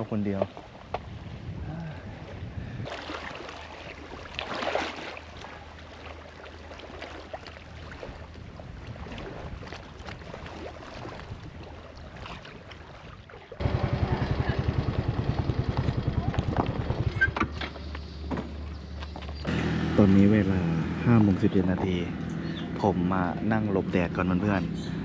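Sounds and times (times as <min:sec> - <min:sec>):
waves washing on shore: 0:00.0 - 0:17.1
wind on microphone: 0:00.7 - 0:03.0, 0:08.0 - 0:17.4
engine running with rapid pulse: 0:13.6 - 0:25.0
steady low hum: 0:13.6 - 0:25.0.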